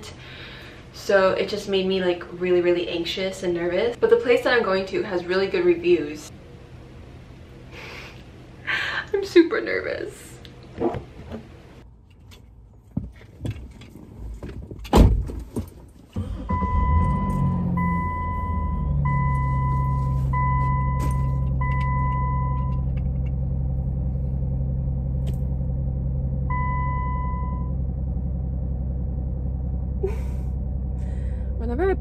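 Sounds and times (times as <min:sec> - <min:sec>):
truck engine starting and idling: 0:15.9 - 0:32.0
two-tone warning chime: 0:16.6 - 0:22.8.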